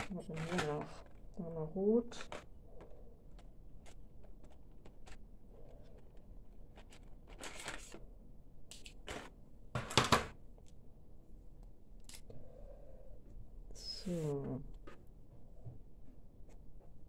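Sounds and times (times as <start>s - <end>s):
pens clicking and rustling: 0.0s - 1.4s, 2.1s - 5.3s, 6.0s - 8.0s
plastic case clatter: 0.1s - 1.1s.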